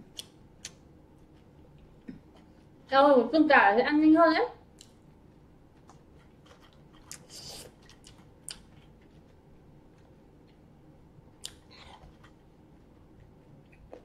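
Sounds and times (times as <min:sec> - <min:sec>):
chewing crispy food: 0:04.7 - 0:14.0.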